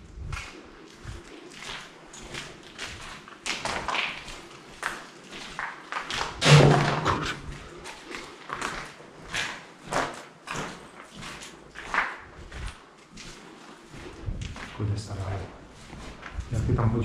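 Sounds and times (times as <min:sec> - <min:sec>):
footsteps on debris: 0:00.0 - 0:17.0
heavy thud: 0:06.4 - 0:07.3.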